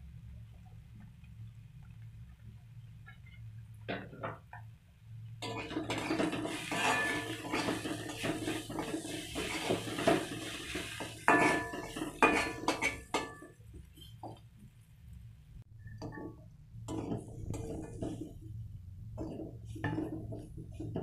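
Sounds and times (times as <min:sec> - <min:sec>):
metal spatula scraping a wok: 0:05.4 - 0:13.4, 0:16.9 - 0:18.4, 0:19.2 - 0:21.0.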